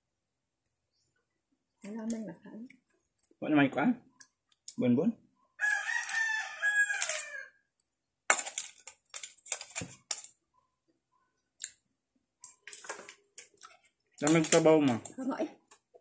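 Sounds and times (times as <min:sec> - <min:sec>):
rooster crowing: 0:05.6 - 0:07.6
spoon and shells clinking in bowl: 0:08.3 - 0:10.4, 0:14.2 - 0:15.1.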